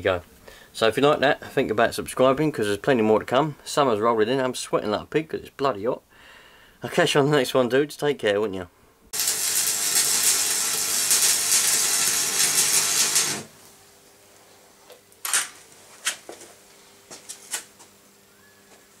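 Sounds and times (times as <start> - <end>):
arc welding crackle: 9.1 - 13.8.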